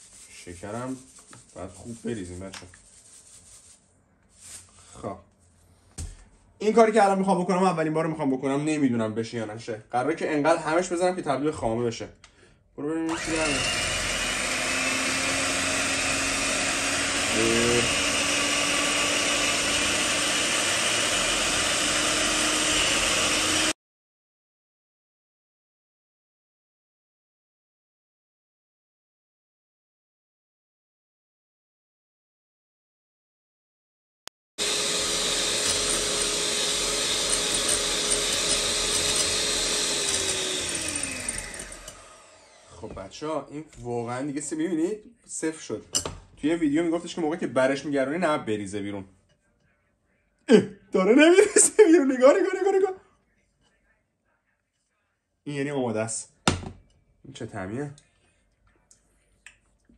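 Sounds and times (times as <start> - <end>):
electric hand mixer whining: 13.1 - 23.8, 34.6 - 43.0.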